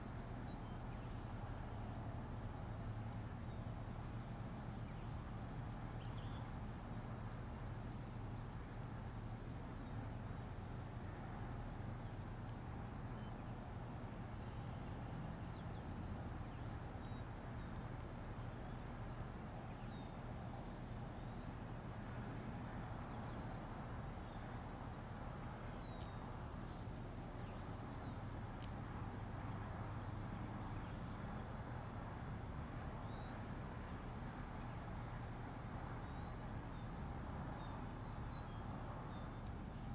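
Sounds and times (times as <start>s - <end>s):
insect chorus trilling: 0.0s - 10.0s, 13.0s - 13.4s, 22.8s - 39.9s
faint low background hum: 0.0s - 39.9s.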